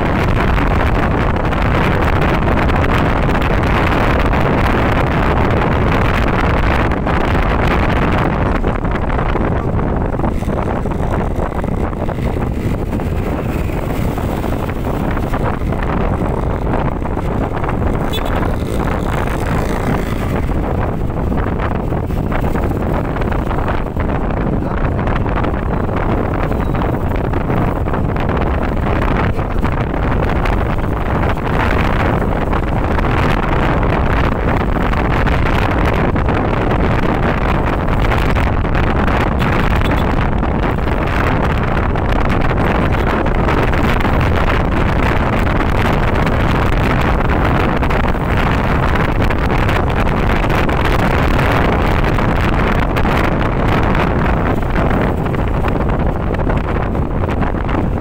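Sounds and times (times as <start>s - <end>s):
road noise: 0.0s - 58.0s
wind buffeting microphone: 0.0s - 58.0s
scooter engine: 3.7s - 36.0s.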